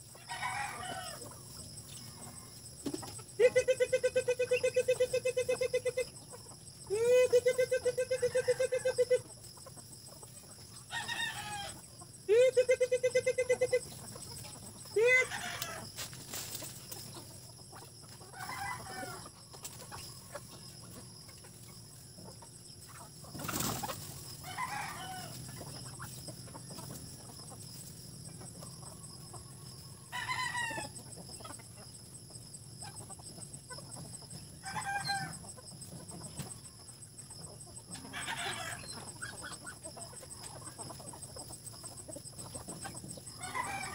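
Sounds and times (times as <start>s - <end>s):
chickens clucking: 0.0s - 43.9s
rooster crowing: 0.2s - 1.2s, 18.4s - 19.2s, 24.4s - 25.4s, 34.6s - 35.4s, 38.1s - 39.0s, 43.4s - 43.9s.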